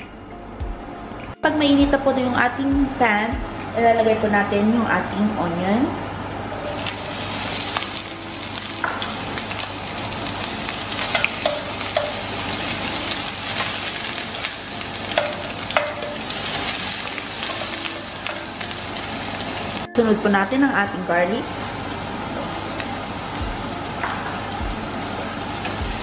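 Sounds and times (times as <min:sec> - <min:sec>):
onion sizzling in hot oil: 0:06.5 - 0:26.0.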